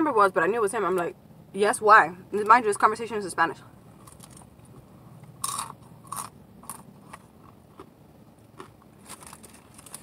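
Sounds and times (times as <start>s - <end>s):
crunchy chewing: 3.9s - 10.0s.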